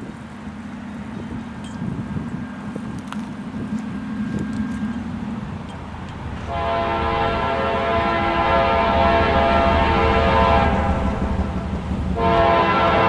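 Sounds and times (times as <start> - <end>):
low train rumble: 0.0 - 13.0
locomotive air horn chord: 5.9 - 13.0.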